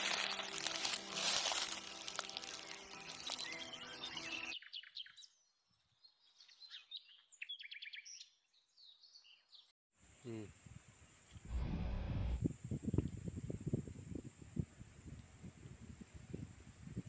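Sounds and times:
small birds chirping: 2.4 - 10.5
low hum: 11.5 - 12.5.

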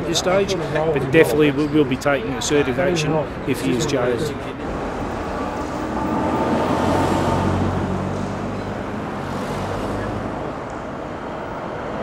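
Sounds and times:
background traffic noise: 0.0 - 12.0
vehicle engine hum: 4.4 - 12.0.

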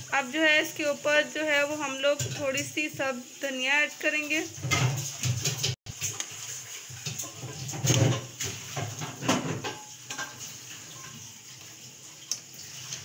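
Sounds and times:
liquid sloshing in pot: 4.0 - 13.0
ladle scraping and clanking pot: 4.6 - 11.4.

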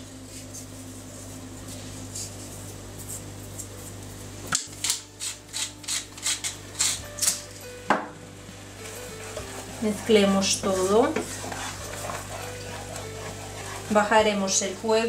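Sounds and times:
pepper mill grinding: 4.7 - 7.4.

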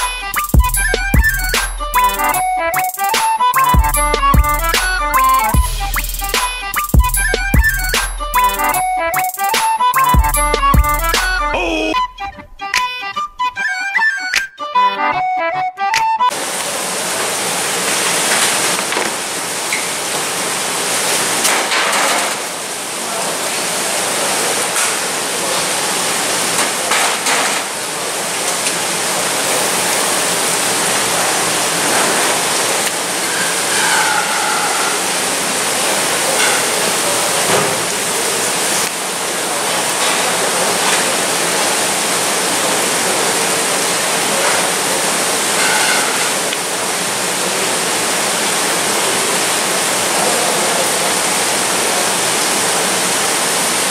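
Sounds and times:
running water: 16.3 - 53.9.

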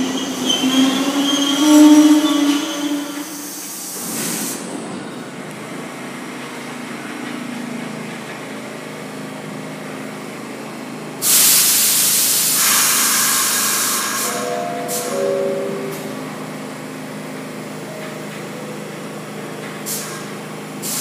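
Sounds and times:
subway train humming: 0.0 - 21.0
compressed air release hissing: 11.2 - 15.2
short tones: 14.0 - 18.5.

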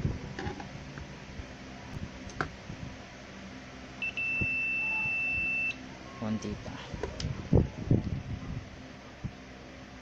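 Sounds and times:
multimeter continuity beep: 4.0 - 6.3.

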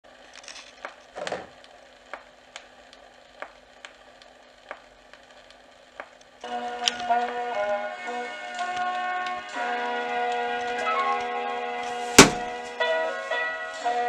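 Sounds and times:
soft thump: 12.2 - 12.5.

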